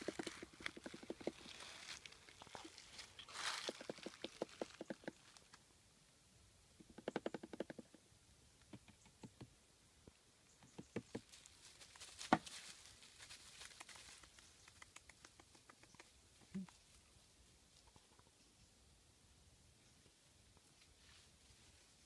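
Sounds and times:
footsteps crunching dry leaves: 1.3s - 4.1s, 11.3s - 14.2s.

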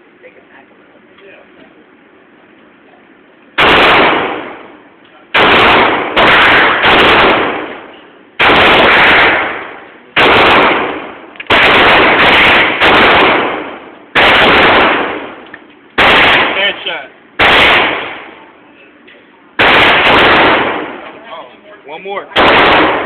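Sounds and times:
pistol shots echoing indoors: 3.6s - 4.7s, 5.4s - 7.8s, 8.4s - 15.4s, 16.0s - 16.7s, 17.4s - 18.3s, 19.6s - 21.0s, 22.4s - 23.0s.

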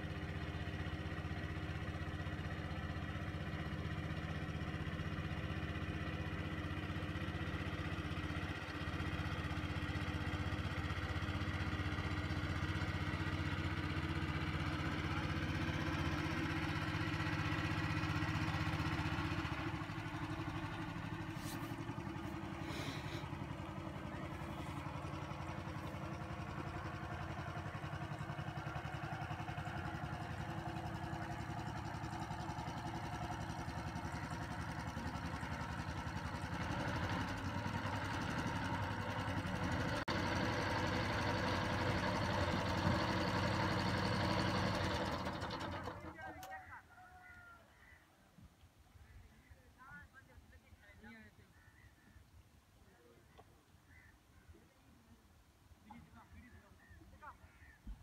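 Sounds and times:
boat motor running: 0.0s - 46.4s.

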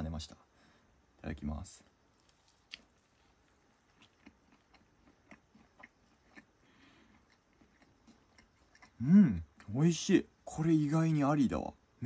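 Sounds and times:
faint chewing mouth clicks: 2.1s - 9.0s.

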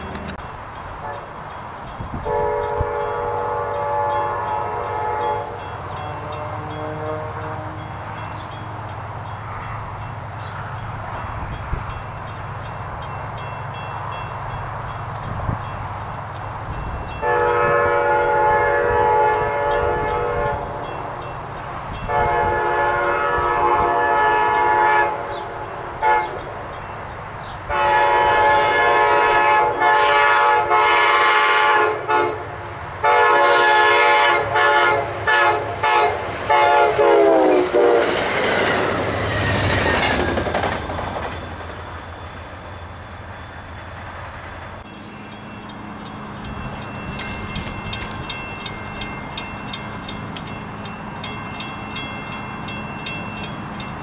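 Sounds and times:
passing train rumble and clatter: 0.0s - 54.0s
locomotive air horn blasts: 1.0s - 1.3s, 2.2s - 8.1s, 17.1s - 21.0s, 22.0s - 26.5s, 27.7s - 38.3s.

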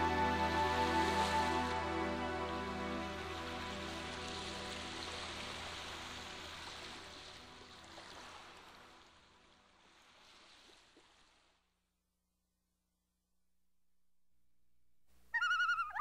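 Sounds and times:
soft background music: 0.0s - 9.8s
rushing water: 0.0s - 11.6s.

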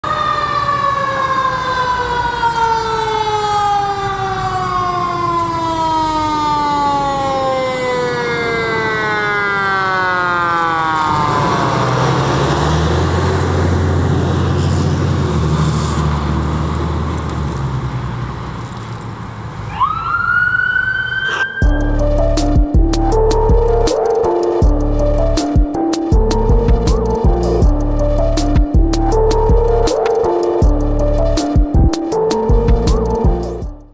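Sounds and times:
fire engine siren: 0.0s - 17.1s, 19.6s - 33.9s
truck engine drone: 0.1s - 33.9s
music: 21.6s - 33.9s.

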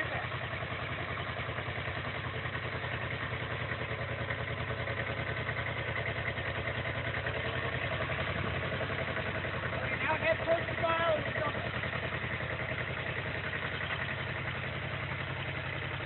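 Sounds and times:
tractor engine chugging: 0.0s - 16.0s.

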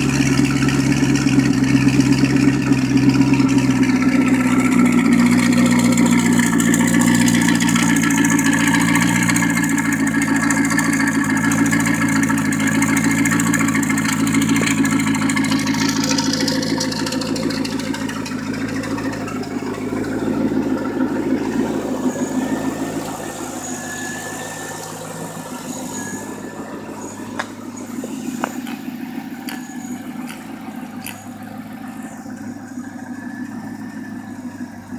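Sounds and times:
car engine idling: 0.0s - 34.9s
sharp clicks: 28.4s - 31.3s.

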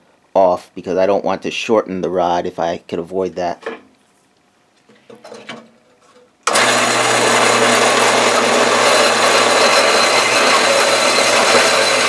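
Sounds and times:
bandsaw running with low hum: 6.4s - 12.0s.

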